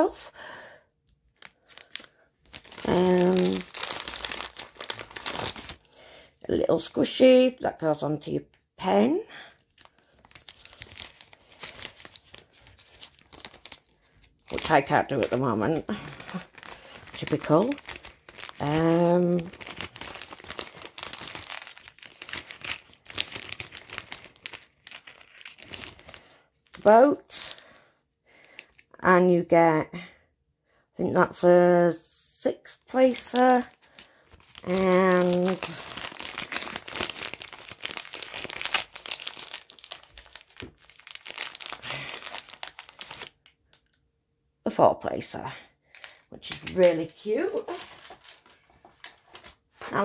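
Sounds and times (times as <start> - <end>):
plastic bag crinkling: 1.3 - 6.0, 9.4 - 27.6, 33.0 - 44.0, 45.9 - 50.0.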